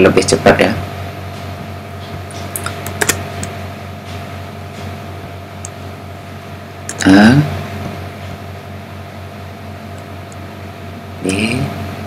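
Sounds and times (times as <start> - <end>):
steady low hum: 0.0 - 12.0
computer keyboard clicks: 2.3 - 3.5.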